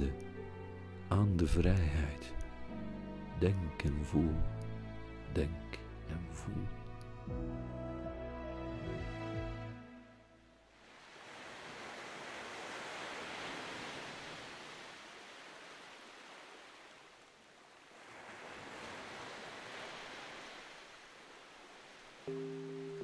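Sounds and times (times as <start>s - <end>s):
low sustained musical chord: 0.0s - 10.7s, 22.3s - 23.0s.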